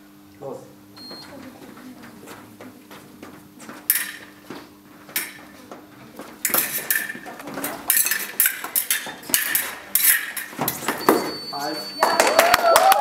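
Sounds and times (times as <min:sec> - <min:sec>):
fencing blades clashing: 0:03.6 - 0:13.0.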